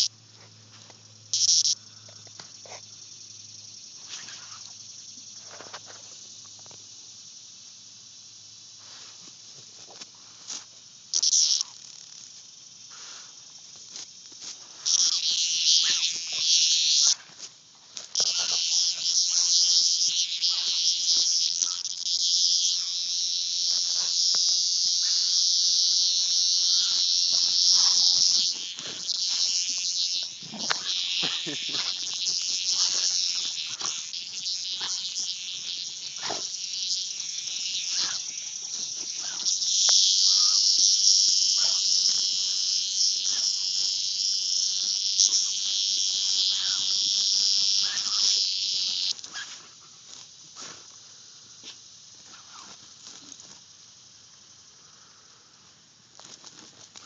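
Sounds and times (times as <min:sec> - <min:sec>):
cicada buzzing harshly: 0:00.0 - 0:57.0.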